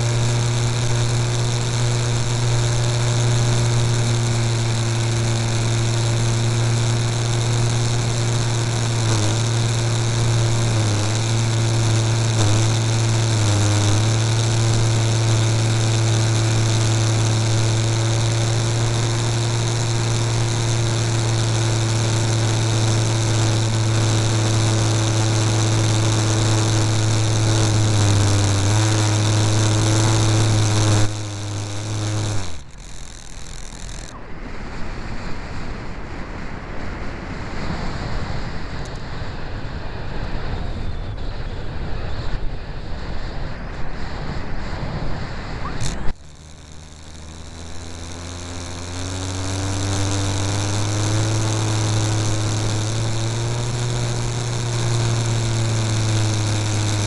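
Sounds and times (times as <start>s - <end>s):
model airplane motor and propeller: 0.0s - 57.0s
wind rushing over microphone: 33.7s - 46.2s.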